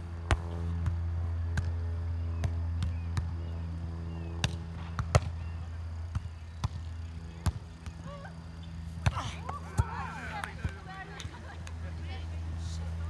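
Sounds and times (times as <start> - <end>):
steady low hum: 0.0 - 13.0
players calling out: 6.4 - 13.0.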